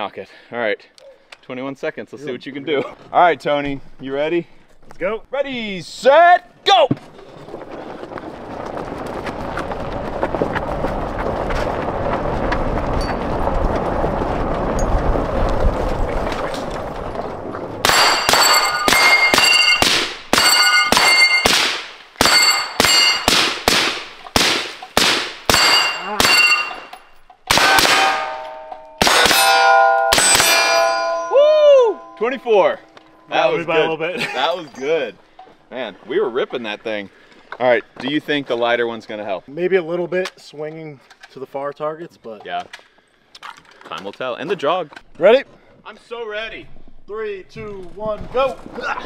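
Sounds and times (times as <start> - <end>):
steady rushing noise: 7.7 - 18.2
rifle shots: 17.8 - 26.9, 27.5 - 30.9
steel plates ringing: 17.9 - 21.6, 22.2 - 23.4, 24.8 - 34.1.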